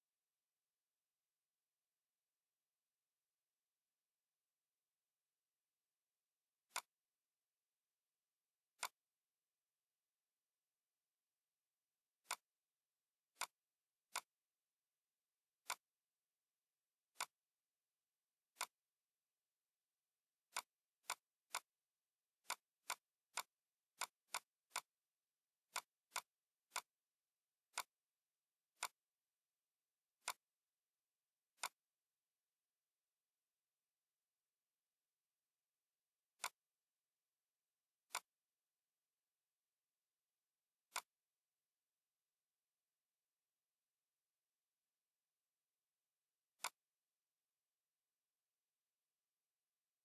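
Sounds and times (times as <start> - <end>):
computer mouse clicking: 6.7 - 7.0, 8.8 - 9.0, 12.2 - 12.5, 13.3 - 14.4, 15.6 - 15.9, 17.1 - 17.4, 18.5 - 18.8, 20.5 - 21.8, 22.4 - 25.0, 25.7 - 27.0, 27.7 - 28.0, 28.7 - 29.1, 30.2 - 30.6, 31.5 - 31.9, 36.4 - 36.7, 38.1 - 38.4, 40.8 - 41.3, 46.6 - 46.9.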